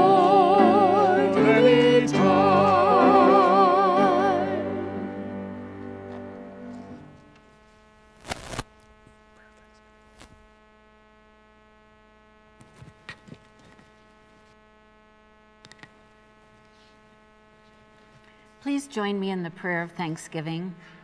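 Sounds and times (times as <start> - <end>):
music chord: 0.0 - 7.4
electrical mains hum: 0.0 - 21.0.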